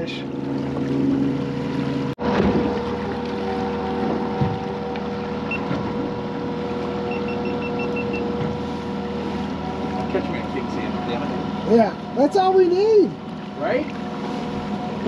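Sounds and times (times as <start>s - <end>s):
outboard motor running: 0.0s - 15.0s
water washing: 0.0s - 15.0s
wind: 0.0s - 15.0s
short high beeps: 7.1s - 8.3s.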